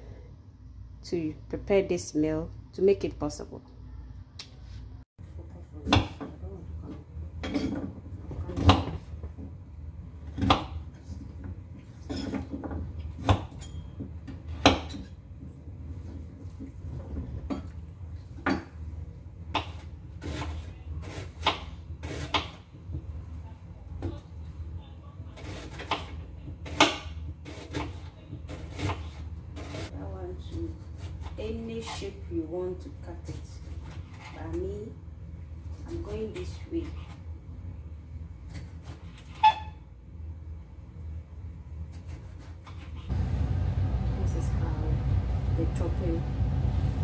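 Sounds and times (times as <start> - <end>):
low steady hum: 43.0 - 47.0.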